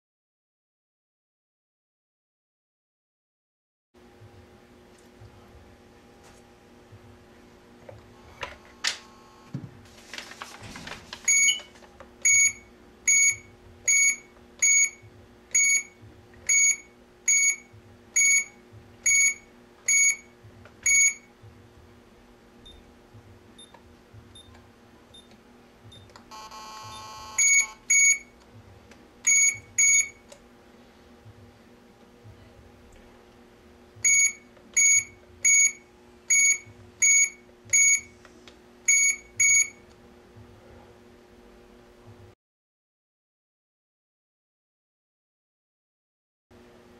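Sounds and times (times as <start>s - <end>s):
keypad beeps: 11.3s - 21.3s, 23.6s - 25.3s, 25.9s - 28.3s, 29.2s - 30.2s, 34.0s - 38.1s, 38.9s - 39.8s
long buzzing tone: 26.3s - 27.8s.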